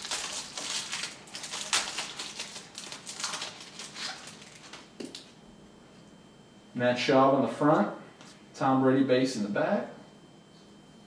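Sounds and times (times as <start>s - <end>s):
plastic sleeve crinkling: 0.0s - 5.3s.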